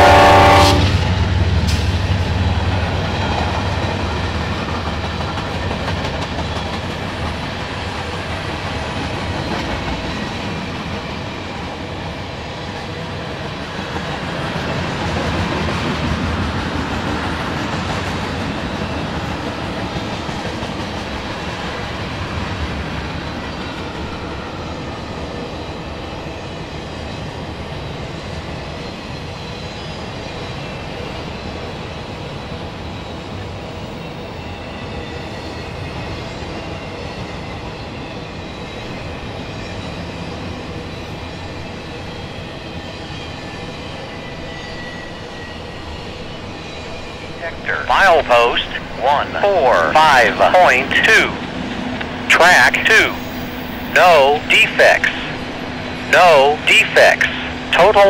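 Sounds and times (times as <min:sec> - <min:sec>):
locomotive horn: 0:00.0 - 0:01.0.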